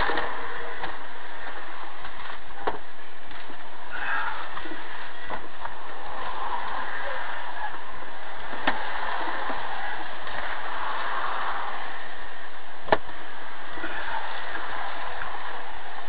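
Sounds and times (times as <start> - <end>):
road and tyre noise: 0.0 - 16.0.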